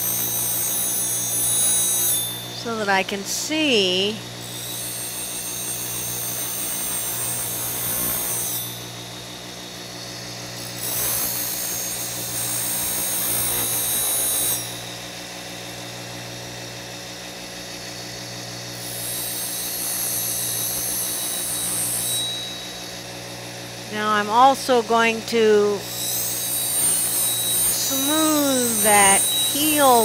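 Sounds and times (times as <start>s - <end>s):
bench grinder humming: 0.0s - 16.6s, 18.2s - 30.0s
steel grinding on wheel: 25.4s - 30.0s.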